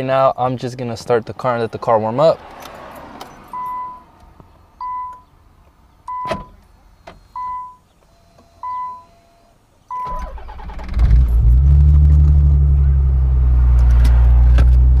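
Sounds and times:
dashboard warning chime beeping: 3.5 - 4.1, 4.8 - 5.3, 6.1 - 6.6, 7.2 - 10.3
car starter cranking engine: 9.9 - 12.4.

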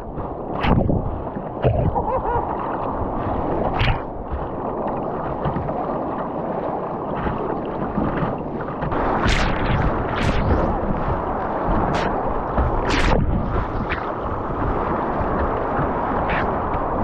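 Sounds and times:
sharp water splashes: 8.9 - 14.2.

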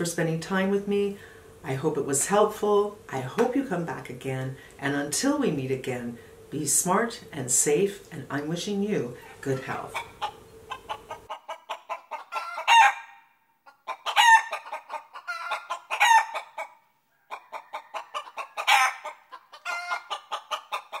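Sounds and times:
chicken clucking: 9.2 - 21.0
chicken squawking: 9.2 - 21.0.

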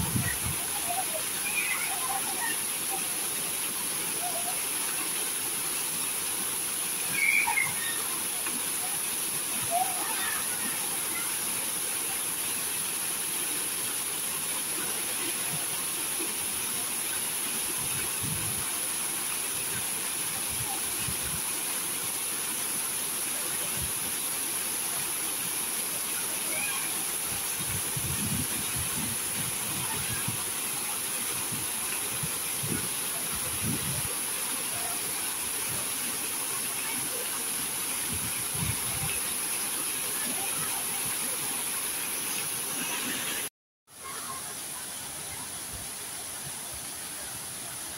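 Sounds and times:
fountain water splashing: 0.0 - 47.9.

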